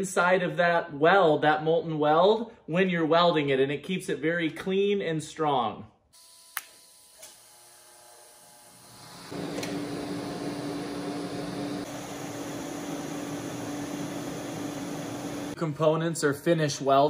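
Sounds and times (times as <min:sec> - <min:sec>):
welding arc buzzing hiss: 0:06.2 - 0:15.6.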